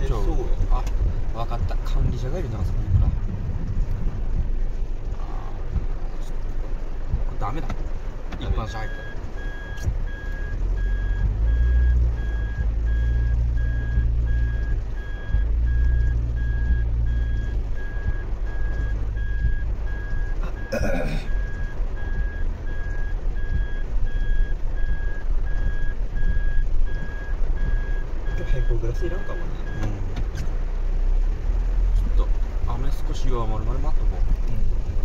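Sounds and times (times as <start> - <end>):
car rumble: 0.0 - 35.0
heavy rain: 0.0 - 35.0
car warning beeper beeping: 8.4 - 30.0.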